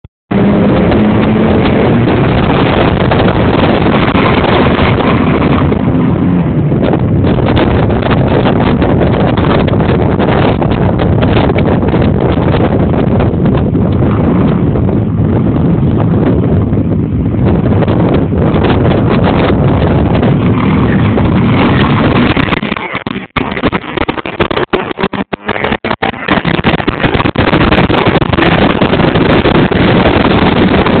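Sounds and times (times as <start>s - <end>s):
wind buffeting microphone: 0.3s - 31.0s.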